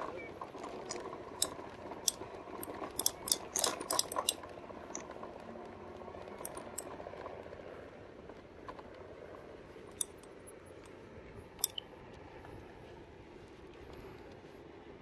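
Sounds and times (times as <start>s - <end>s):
metallic clinking and rattling: 0.6s - 5.1s, 6.4s - 6.9s, 9.9s - 11.8s.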